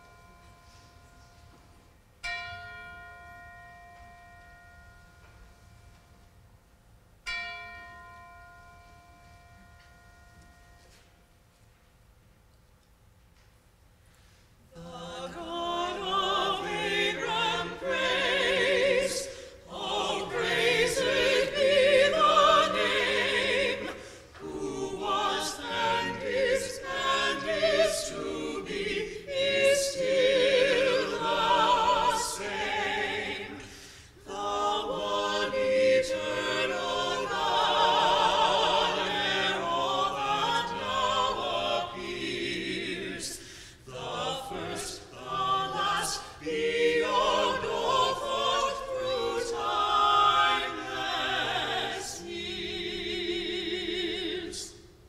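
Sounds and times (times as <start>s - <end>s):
mixed choir singing in parts: 14.7s - 54.9s.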